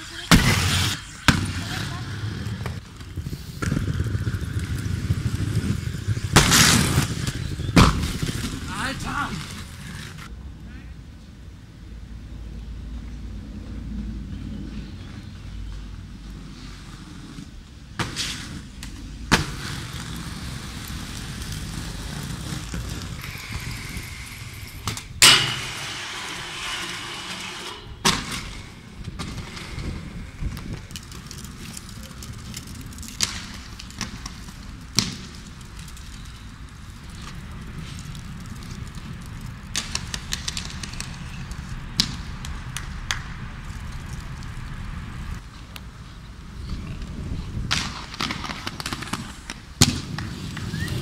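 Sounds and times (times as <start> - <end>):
skate wheels rolling over stone: 0.0 - 10.3, 14.9 - 51.0
skates clacking on ground: 15.7 - 45.9, 46.6 - 51.0.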